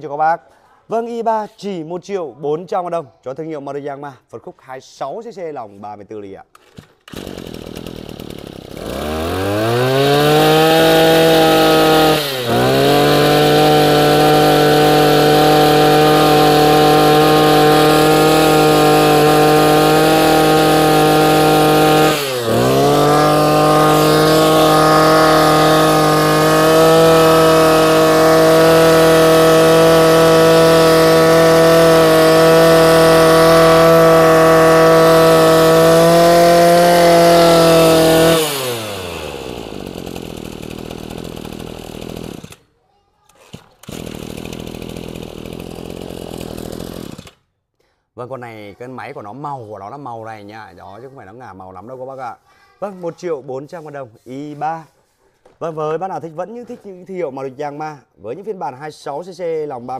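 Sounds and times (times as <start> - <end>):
brush cutter engine revving: 6.6 - 42.6, 43.3 - 47.4.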